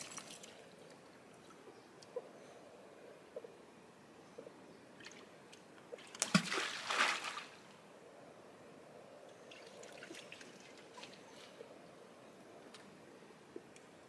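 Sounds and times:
bait splashing into water: 0:06.1 - 0:07.6.

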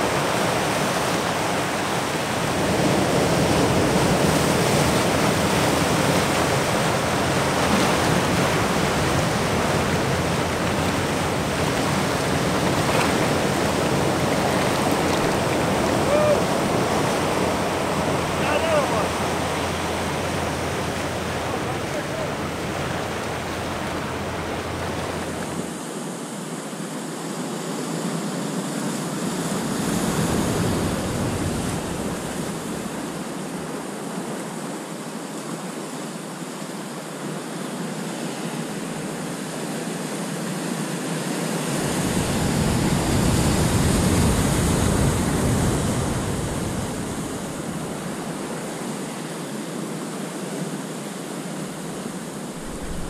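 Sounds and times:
surf breaking over rocks: 0:00.0 - 0:25.8, 0:29.3 - 0:34.0, 0:41.4 - 0:49.3, 0:51.2 - 0:53.0.

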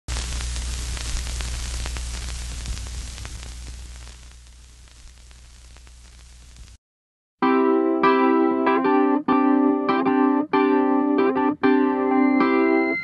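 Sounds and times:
static crackles: 0:00.1 - 0:06.8
tv static hiss: 0:00.1 - 0:06.8.

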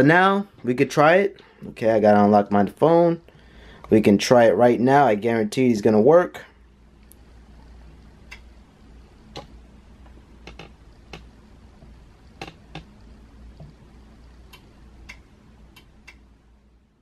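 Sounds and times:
faint low hum: 0:00.0 - 0:17.0
fingers tapping on smartphone: 0:12.4 - 0:12.9.

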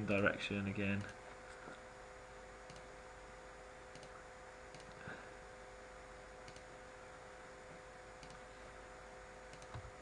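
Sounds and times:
low steady hum: 0:00.0 - 0:10.0
faint mouse clicks: 0:02.7 - 0:02.9, 0:03.9 - 0:05.0, 0:06.4 - 0:06.7, 0:08.2 - 0:08.4, 0:09.5 - 0:09.8.

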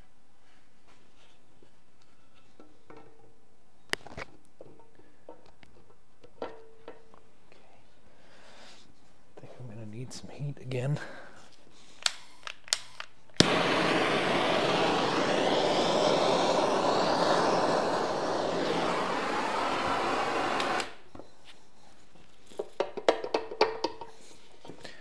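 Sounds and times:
heat gun blowing: 0:13.4 - 0:21.0.

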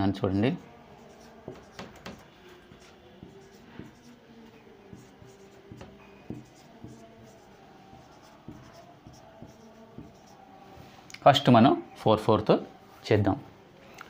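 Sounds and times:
marker scratching on whiteboard: 0:01.0 - 0:10.5
marker tapping: 0:01.1 - 0:10.4.

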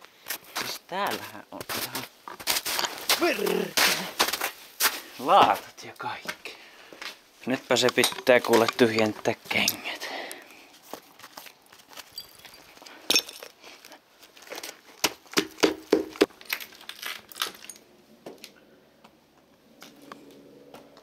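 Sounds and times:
small clinks: 0:12.0 - 0:13.6
shoe knocking on concrete: 0:15.0 - 0:16.3.

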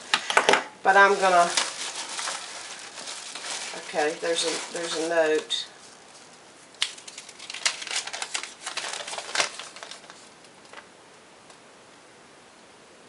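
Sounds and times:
paper crinkling and rustling: 0:00.9 - 0:10.9.

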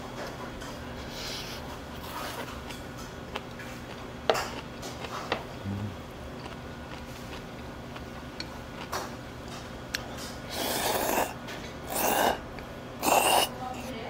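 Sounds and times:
slurping noodles: 0:10.5 - 0:12.4, 0:13.0 - 0:13.5.

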